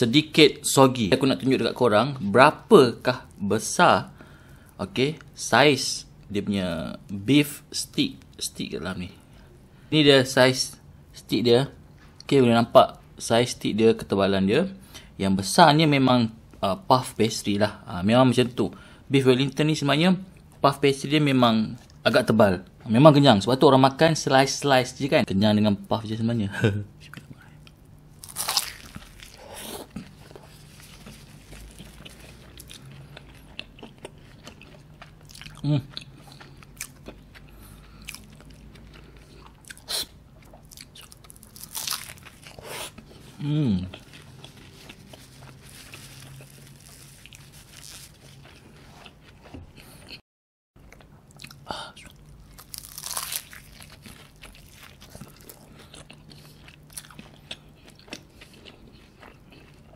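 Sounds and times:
crunch of pastry crust: 28.2 - 39.8, 40.4 - 43.2, 43.9 - 50.1, 52.4 - 59.8
close chewing with small clicks: 29.9 - 43.1, 50.8 - 59.9.

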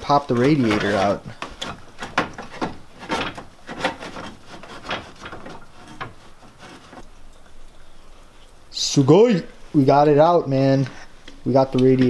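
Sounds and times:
plastic and metal parts knocking: 0.0 - 7.0.

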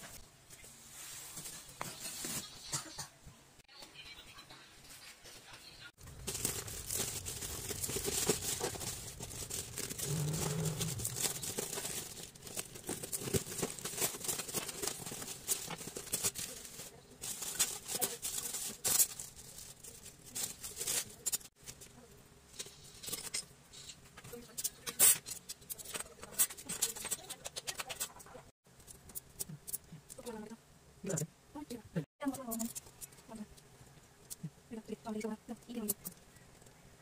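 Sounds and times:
plastic wrapping rustling: 6.0 - 23.3.

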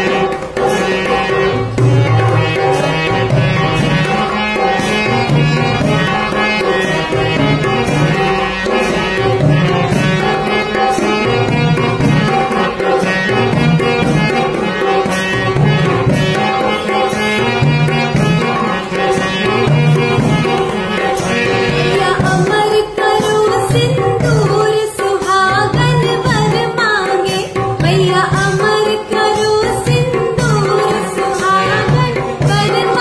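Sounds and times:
held melodic notes: 0.0 - 33.0
tabla: 0.0 - 33.0
woman singing: 21.8 - 33.0.

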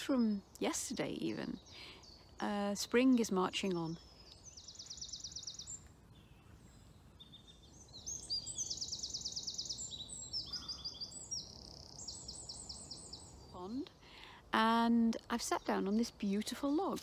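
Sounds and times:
small songbirds singing: 0.0 - 17.0.

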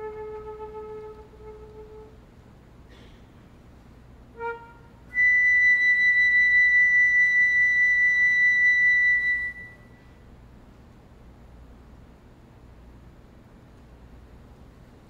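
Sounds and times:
flute holding high note: 0.0 - 2.2, 4.4 - 10.1.

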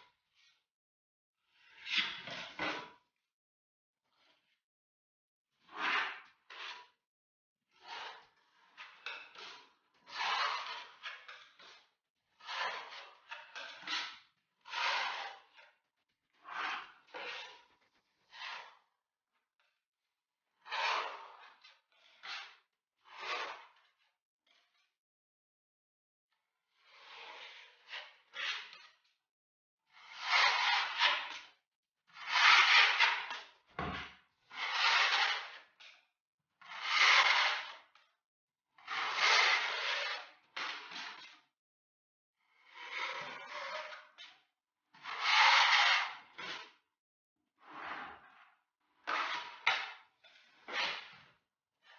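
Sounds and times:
knife scraping plaster wall: 1.4 - 3.2, 4.1 - 4.6, 5.6 - 19.8, 20.4 - 25.0, 26.7 - 29.2, 29.9 - 36.0, 36.6 - 41.6, 42.4 - 46.9, 47.6 - 51.9
filling knife scraping plaster: 16.4 - 18.8, 34.5 - 35.6.

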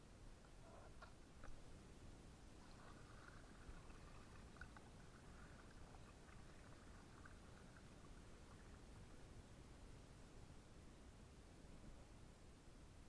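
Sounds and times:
faint water lapping against kayak: 2.4 - 9.7
small splashy ticks: 2.6 - 8.8.

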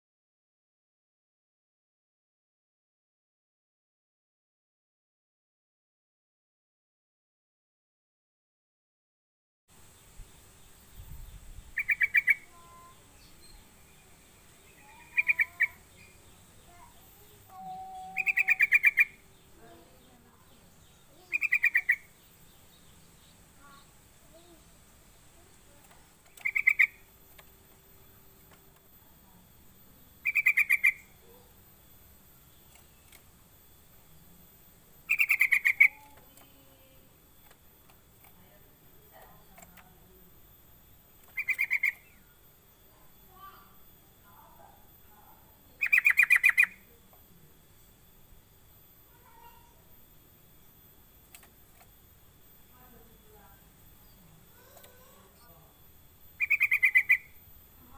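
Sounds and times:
bird calling sharp repeated notes: 11.7 - 13.6, 14.6 - 19.6, 21.0 - 22.2, 26.2 - 27.4, 30.2 - 31.2, 35.0 - 36.5, 41.2 - 42.3, 45.7 - 46.9, 56.2 - 57.4
soft whistled bird notes: 17.2 - 19.2.

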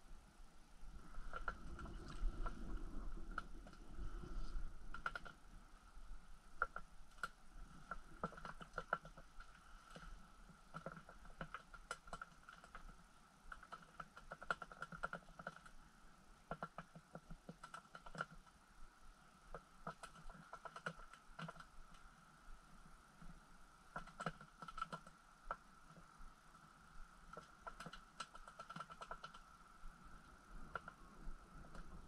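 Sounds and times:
fishing rod clicks and ticks: 4.9 - 5.4.

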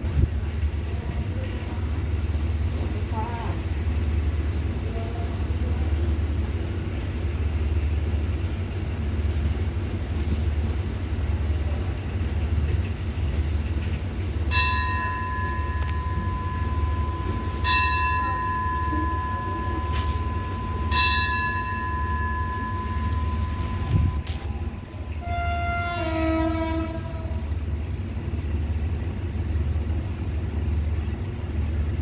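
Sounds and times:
train humming: 0.0 - 32.0
bell ringing: 14.5 - 25.4.

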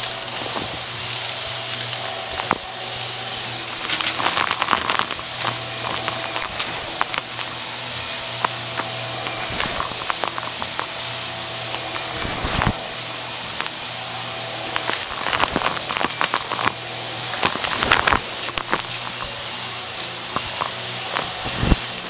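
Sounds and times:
debris crackling through vacuum: 0.0 - 22.0
vacuum cleaner motor hum: 0.0 - 22.0.

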